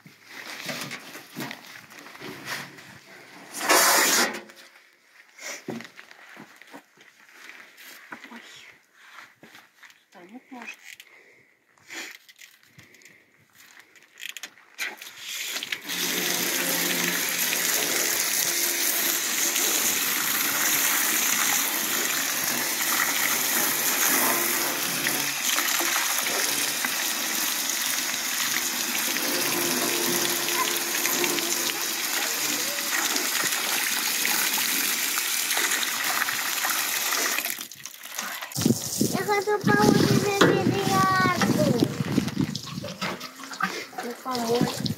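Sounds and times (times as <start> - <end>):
hose spray hissing and splashing: 15.0 - 44.9.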